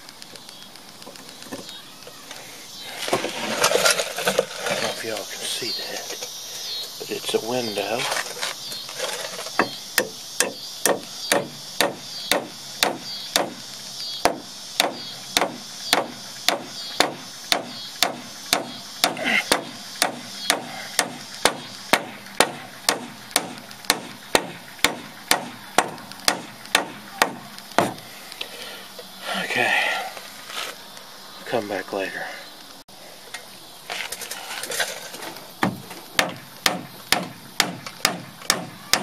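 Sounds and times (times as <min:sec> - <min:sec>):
hammer driving nails into wood: 0:14.2 - 0:28.0, 0:35.6 - 0:39.0.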